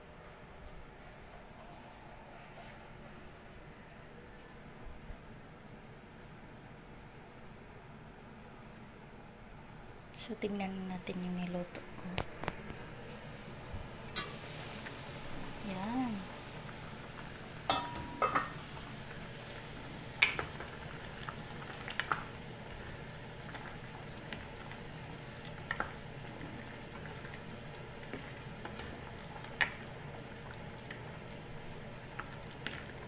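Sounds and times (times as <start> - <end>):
broth bubbling in a pot: 11.1 - 33.0.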